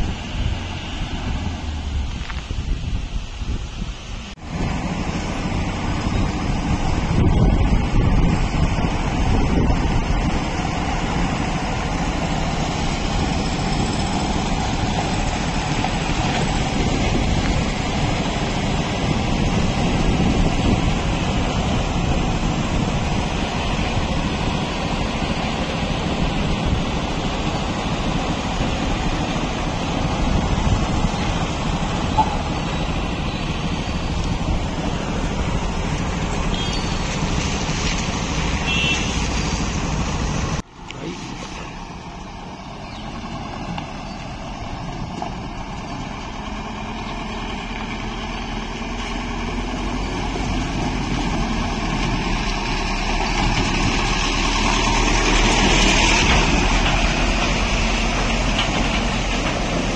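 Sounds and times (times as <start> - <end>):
wind noise on microphone: 0.0 - 40.6
truck diesel engine: 0.0 - 59.9.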